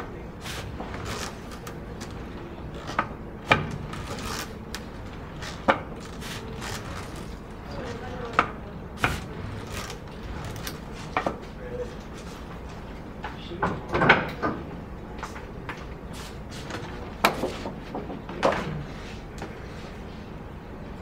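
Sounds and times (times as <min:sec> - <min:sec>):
cardboard roller rolling over paper: 0:00.4 - 0:08.1, 0:09.0 - 0:11.2
sharp knocks and clicks: 0:02.8 - 0:06.8.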